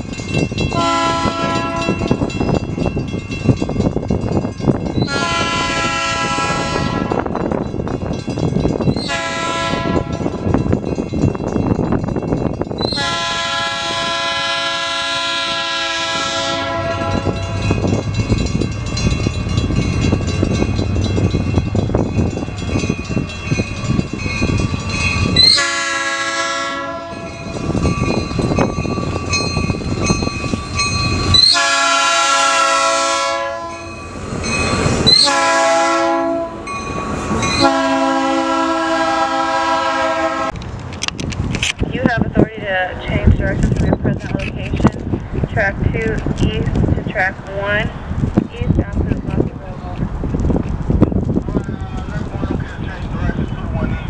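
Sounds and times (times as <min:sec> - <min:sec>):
passing train rumble and clatter: 0:00.0 - 0:54.0
locomotive air horn blasts: 0:00.7 - 0:02.2, 0:05.0 - 0:07.3, 0:09.0 - 0:10.4, 0:12.9 - 0:17.8, 0:25.4 - 0:27.4, 0:31.4 - 0:33.9, 0:35.1 - 0:36.6, 0:37.6 - 0:40.6.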